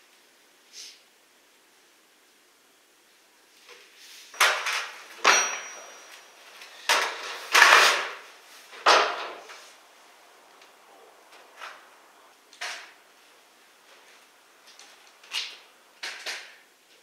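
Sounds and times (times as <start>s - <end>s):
tools knocking and clanking: 4.4s - 8.0s
brief metallic ring: 5.2s - 6.9s.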